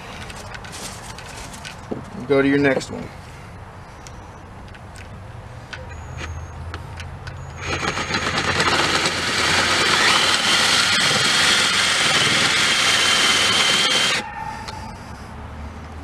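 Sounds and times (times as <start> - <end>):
drill boring into metal: 7.6 - 14.2.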